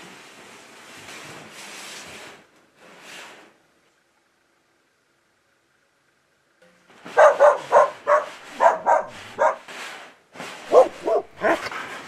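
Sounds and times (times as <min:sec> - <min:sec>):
dog barking: 0:07.1 - 0:09.7, 0:10.7 - 0:11.7.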